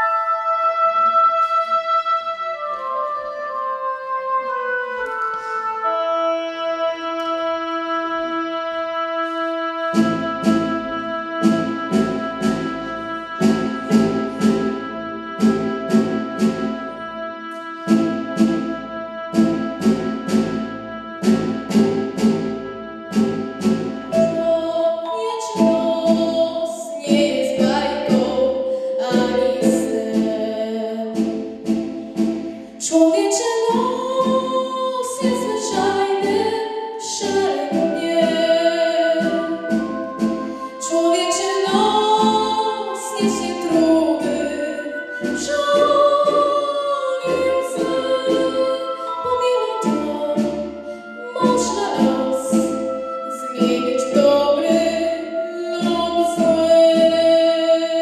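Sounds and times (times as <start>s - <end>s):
girl singing into microphone: 24.1s - 31.3s, 32.5s - 58.0s.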